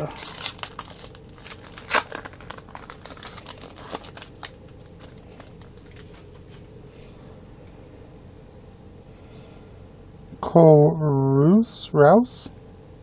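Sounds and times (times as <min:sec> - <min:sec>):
wrapper crinkling: 0:00.0 - 0:06.7.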